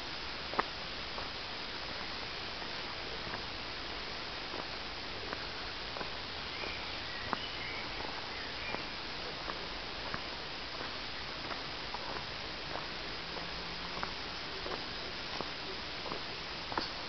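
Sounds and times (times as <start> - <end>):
footsteps on dirt trail: 0.0 - 17.0
steady hiss: 0.0 - 17.0
bird chirps: 6.4 - 9.0.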